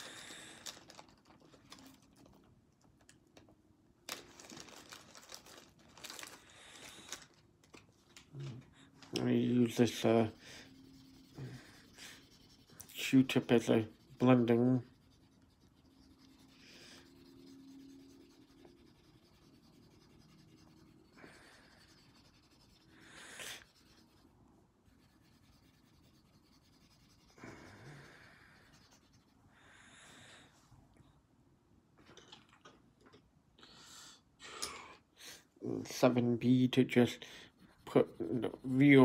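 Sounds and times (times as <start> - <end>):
cotton swab rubbing on paper: 8.1 - 29.5, 35.9 - 39.0.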